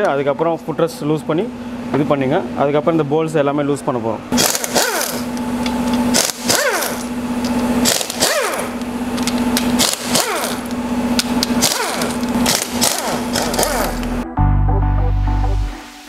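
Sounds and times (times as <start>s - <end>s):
pneumatic impact wrench bursts: 4.3s - 14.1s
music: 14.0s - 16.0s.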